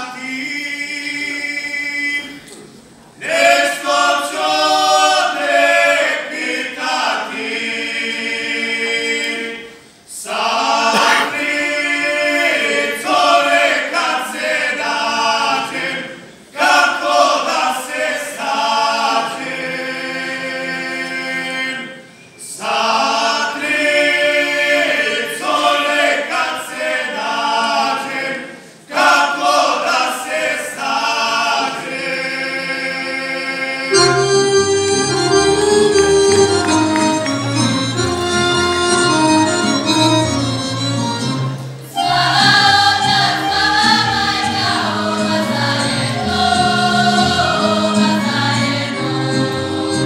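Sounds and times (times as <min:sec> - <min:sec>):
male voices singing together: 0:10.2 - 0:15.9.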